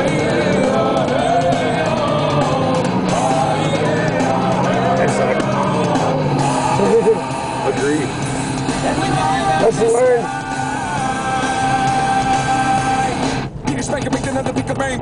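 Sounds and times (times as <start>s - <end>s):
car engine drone: 0.0s - 15.0s
rock music with singing: 0.0s - 15.0s.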